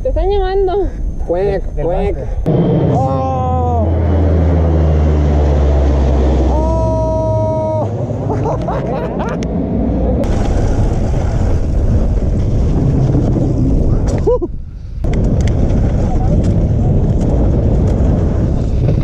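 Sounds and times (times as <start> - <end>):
aircraft engine drone: 0.0 - 12.2
people laughing: 8.2 - 9.5
bike tyres rolling on dirt: 10.2 - 19.0.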